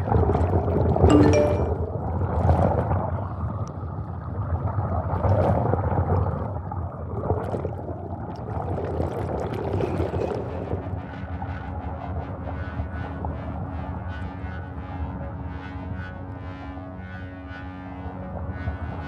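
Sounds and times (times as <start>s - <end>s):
low churning gurgling noise: 0.0s - 19.0s.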